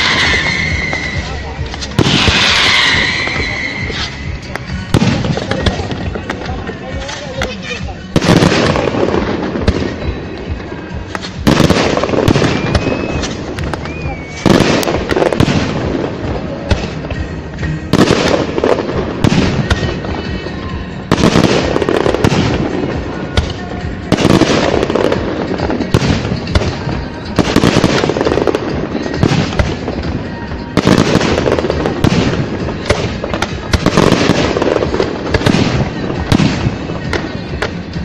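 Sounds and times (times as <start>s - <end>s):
firework shells bursting: 0.0s - 6.8s
firework pops and crackles: 0.0s - 38.0s
music playing: 0.0s - 38.0s.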